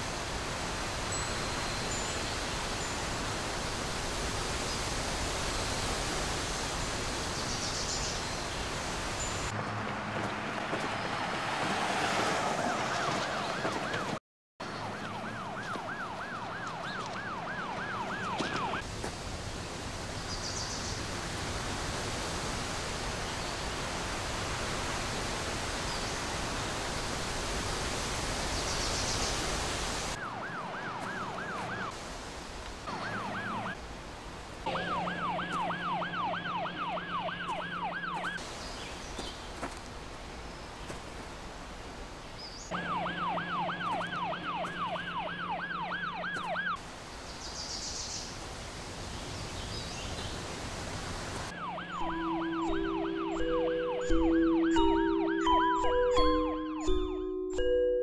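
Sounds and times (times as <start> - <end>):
emergency siren yelping: 12.6 - 14.2, 14.8 - 18.8, 30.2 - 32.0, 32.9 - 33.8, 34.6 - 38.4, 42.7 - 46.8, 51.5 - 57.2.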